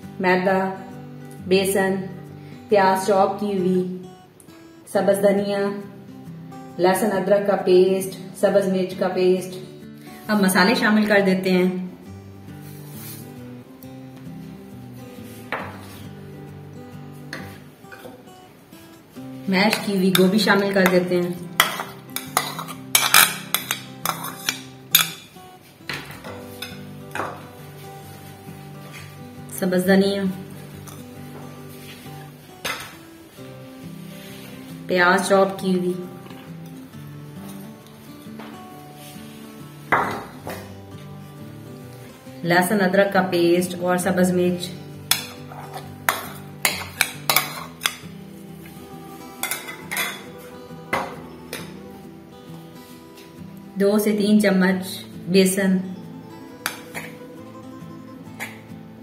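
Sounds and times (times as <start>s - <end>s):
soft background music: 0.0s - 59.0s
metal spoon scraping a bowl: 19.7s - 25.3s, 45.0s - 48.1s, 49.3s - 50.4s.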